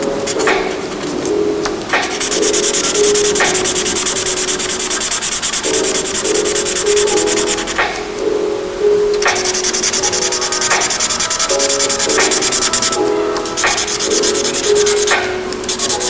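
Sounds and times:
felt-tip pen scratching on paper: 9.4 - 16.0.

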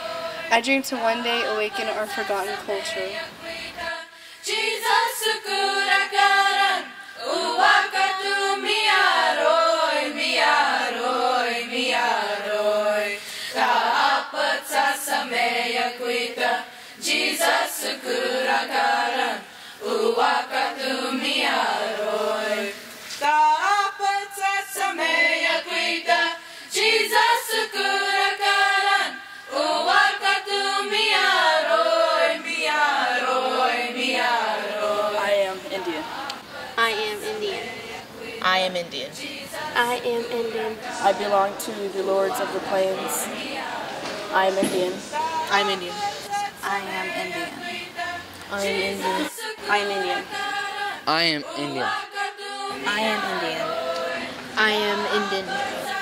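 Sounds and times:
youth choir singing a hymn: 0.0 - 56.0.

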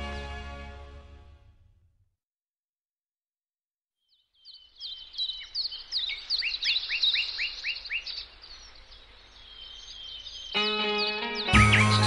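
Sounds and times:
small birds singing: 4.0 - 12.0.

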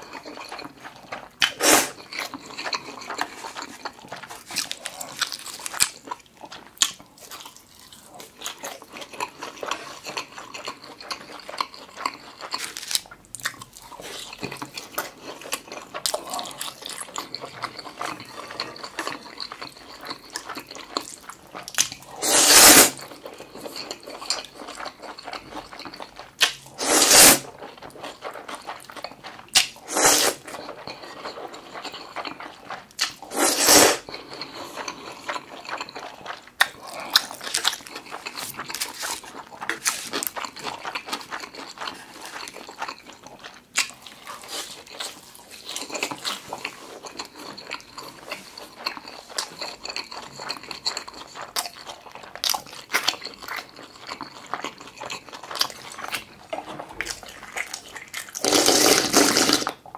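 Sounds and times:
chewing and mouth clicks: 0.0 - 22.2, 22.9 - 26.8, 27.4 - 59.9
loud noodle slurps: 1.4 - 2.1, 22.1 - 23.0, 26.4 - 27.6, 29.6 - 30.6, 33.2 - 35.2, 58.4 - 59.8.

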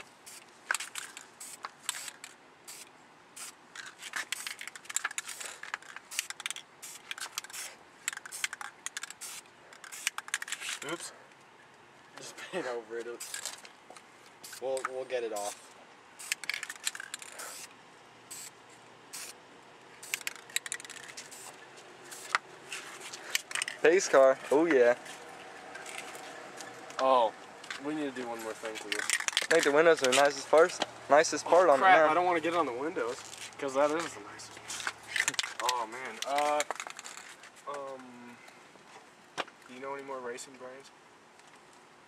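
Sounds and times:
spray-paint can hissing: 0.2 - 10.8, 13.2 - 13.5, 14.4 - 14.6, 16.2 - 17.7, 18.3 - 19.4, 20.0 - 22.4
sharp clicks and rattles: 3.7 - 11.0, 16.2 - 17.7, 20.0 - 22.4, 23.1 - 24.4, 27.6 - 30.9, 34.7 - 37.8.

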